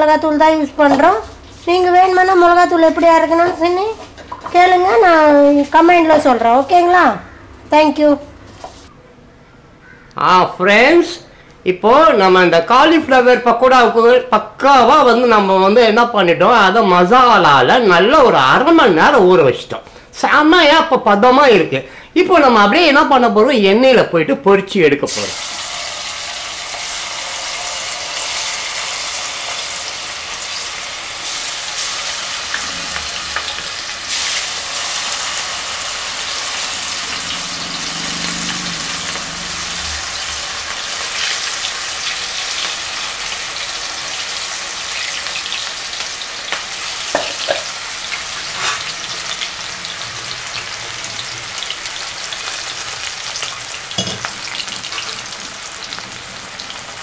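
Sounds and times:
hot oil sizzling: 0:00.0 - 0:07.6, 0:25.0 - 0:57.0.

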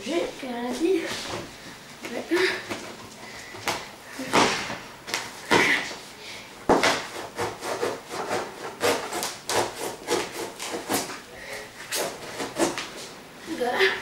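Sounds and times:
knife sawing through packing tape: 0:07.1 - 0:11.1, 0:11.9 - 0:12.9.

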